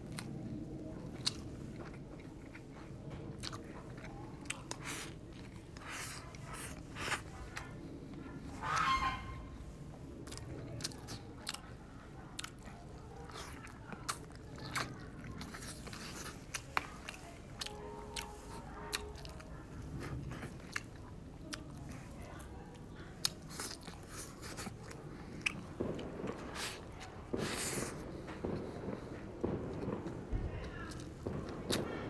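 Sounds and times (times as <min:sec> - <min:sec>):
chewing and biting food: 0:00.0 - 0:09.3, 0:10.1 - 0:31.9.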